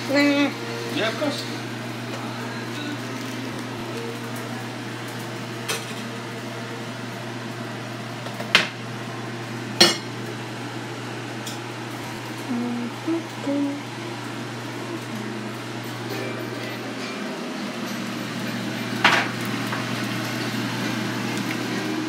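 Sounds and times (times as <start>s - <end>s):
steady low hum: 8.8s - 22.0s.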